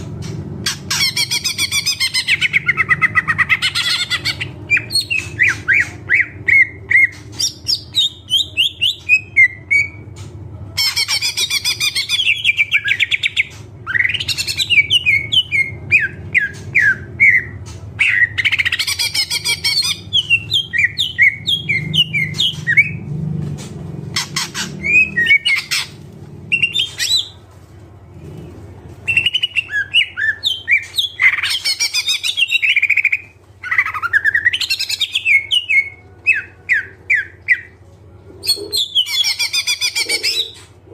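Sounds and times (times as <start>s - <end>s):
bird singing chirps and trills: 0.6s - 23.1s, 24.1s - 27.4s, 29.0s - 37.8s.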